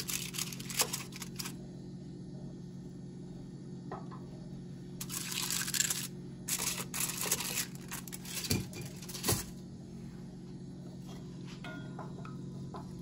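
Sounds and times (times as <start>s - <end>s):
foil wrapper crinkling: 0.0s - 1.6s, 5.0s - 9.6s
steady low hum: 0.0s - 13.0s.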